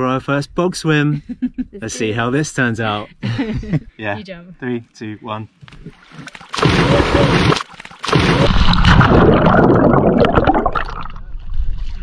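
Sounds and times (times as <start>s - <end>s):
people splashing into water: 5.8s - 11.2s
churning gurgling water: 5.8s - 11.3s.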